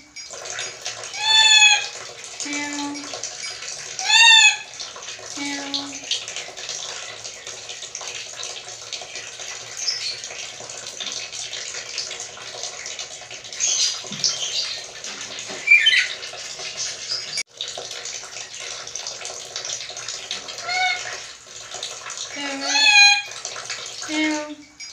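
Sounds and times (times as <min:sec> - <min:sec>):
parrot squeaky calls: 0:01.2 - 0:01.9, 0:04.0 - 0:04.7, 0:15.6 - 0:16.2, 0:20.6 - 0:21.1, 0:22.6 - 0:23.3.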